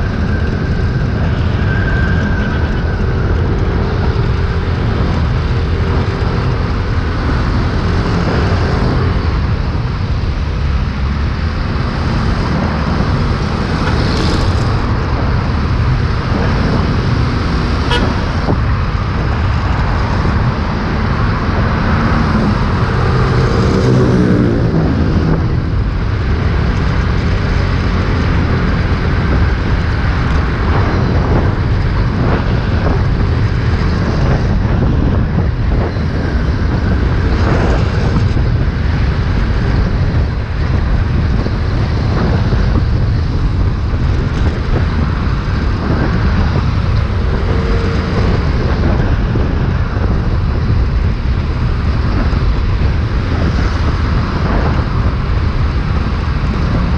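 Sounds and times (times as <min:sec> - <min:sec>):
surrounding traffic: 0:00.0 - 0:56.9
wind rumble on microphone: 0:00.0 - 0:56.9
scooter engine: 0:17.1 - 0:18.4.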